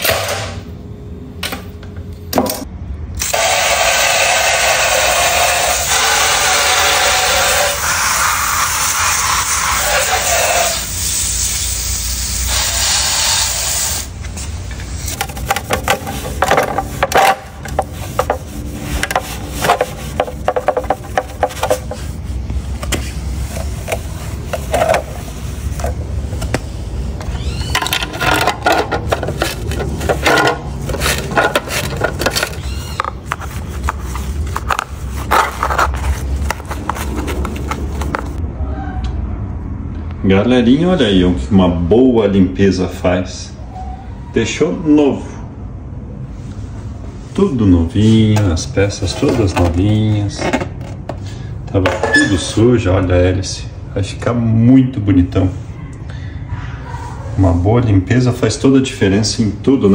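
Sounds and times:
hose spray hissing on plastic: 0:03.3 - 0:14.4
wet sponge scrubbing plastic: 0:15.2 - 0:26.0, 0:28.3 - 0:38.4.

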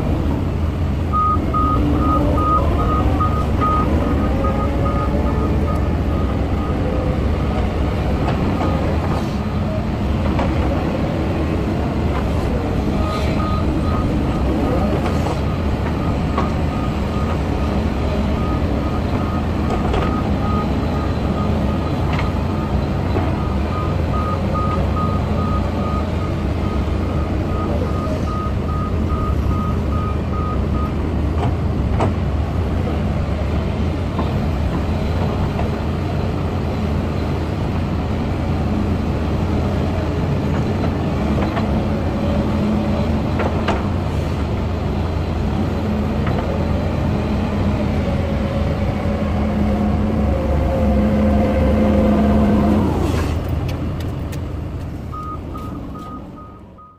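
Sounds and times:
diesel engines running: 0:00.0 - 0:56.9
pulsing alarm beep: 0:01.1 - 0:06.9, 0:55.1 - 0:56.9.

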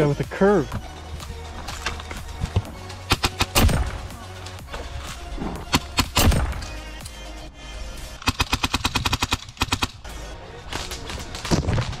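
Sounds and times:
airsoft gun firing rapidly: 0:08.2 - 0:10.0.

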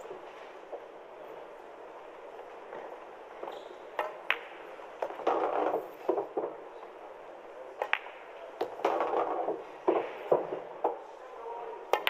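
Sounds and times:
pool balls clicking: 0:04.0 - 0:07.0, 0:07.7 - 0:11.0.

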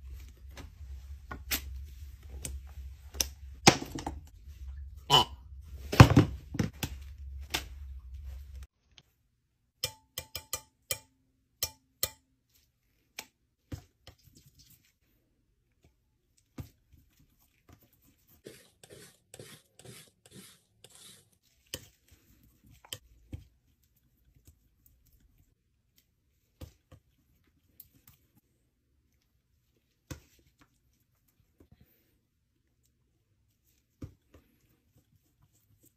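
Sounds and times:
palette knife scraping: 0:18.3 - 0:22.1.

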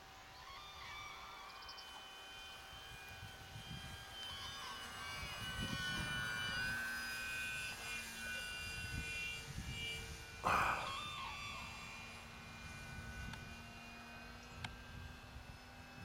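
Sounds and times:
model plane motor whine: 0:00.0 - 0:16.0
wind on microphone: 0:03.1 - 0:06.9.

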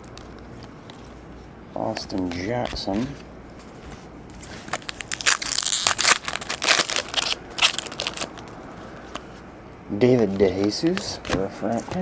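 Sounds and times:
foil wrapper tearing and crinkling: 0:04.6 - 0:08.5.

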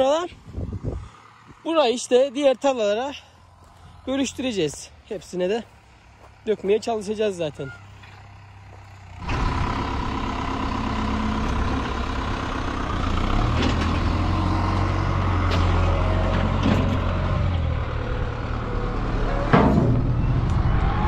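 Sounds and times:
faint distant engine hum: 0:00.0 - 0:11.7
tractor diesel engine running: 0:00.0 - 0:21.0.

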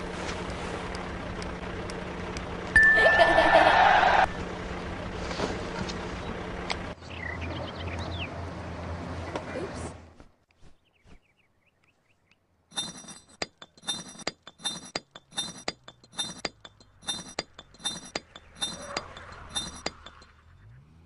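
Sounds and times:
sharp ringing clinks: 0:12.7 - 0:20.4.

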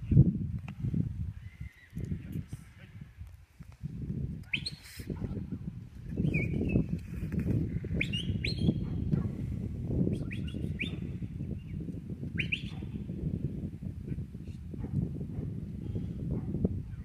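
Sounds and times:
wind rumble on microphone: 0:00.0 - 0:17.0.

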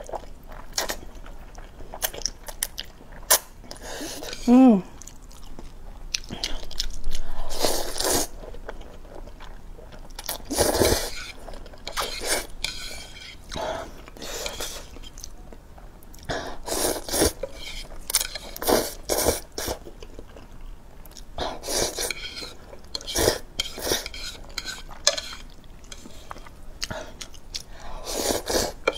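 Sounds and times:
person chewing: 0:00.0 - 0:15.5, 0:16.1 - 0:28.9
person slurping noodles: 0:07.3 - 0:08.4, 0:10.5 - 0:13.4, 0:18.4 - 0:19.8, 0:21.4 - 0:25.4, 0:28.0 - 0:28.9.

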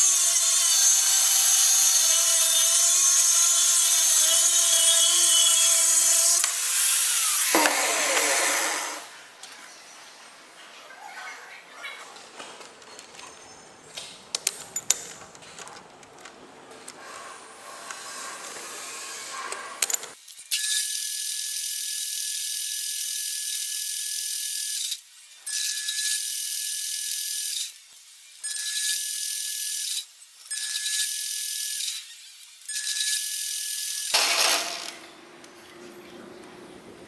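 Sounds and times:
metal lathe whine: 0:00.0 - 0:09.1.

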